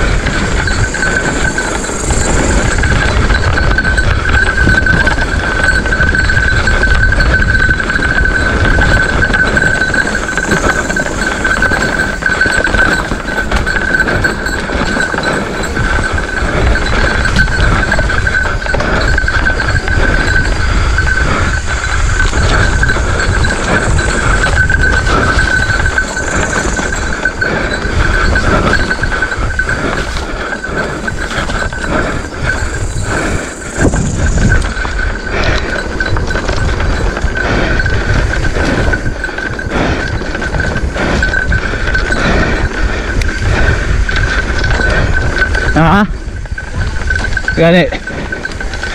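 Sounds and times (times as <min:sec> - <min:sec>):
bike tyres rumbling on dirt: 0:00.0 - 0:47.6
bike rattling and knocking: 0:00.0 - 0:48.9
high-pitched drone: 0:09.5 - 0:16.6.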